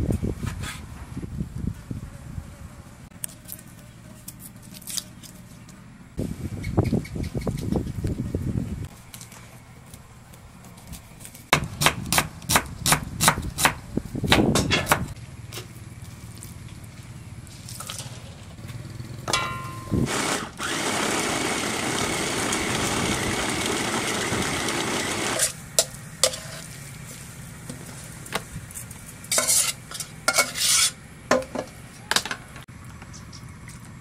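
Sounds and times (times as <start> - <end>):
electric food chopper grinding: 20.0 - 25.6.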